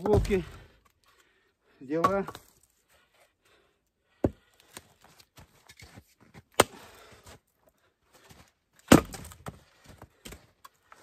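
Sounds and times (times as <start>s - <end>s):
axe splitting firewood: 0.0s - 0.8s, 1.9s - 2.6s, 4.1s - 7.4s, 8.8s - 11.0s.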